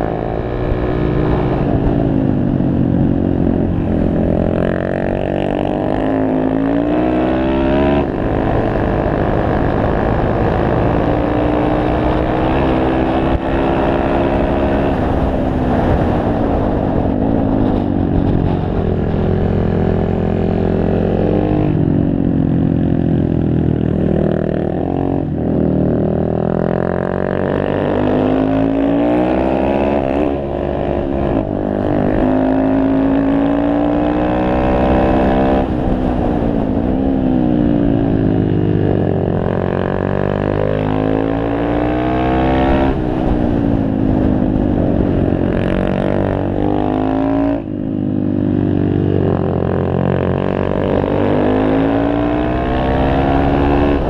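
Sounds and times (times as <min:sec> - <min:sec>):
motorbike engine revving: 0:49.0 - 0:54.0.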